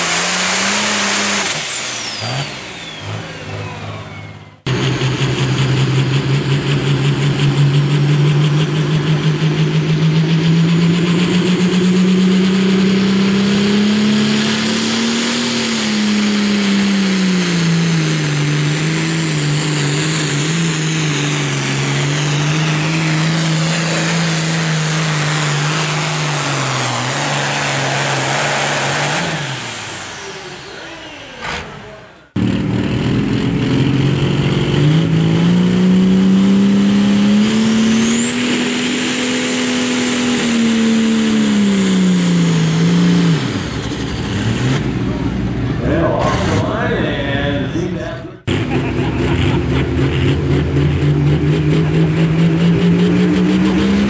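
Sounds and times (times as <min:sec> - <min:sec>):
second tractor diesel engine: 0:00.0 - 0:54.0
tractor diesel engine at full load: 0:00.0 - 0:54.0.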